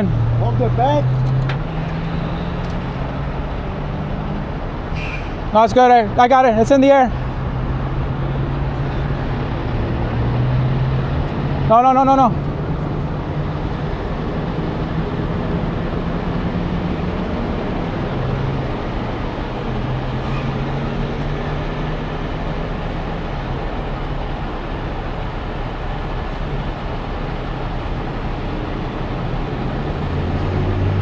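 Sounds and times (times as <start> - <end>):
diesel engine running: 12.4 - 31.0.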